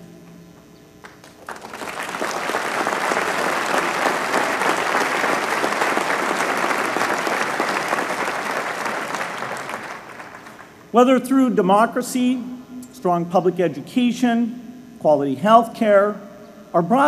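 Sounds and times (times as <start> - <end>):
audience applauding: 1.0 - 10.8.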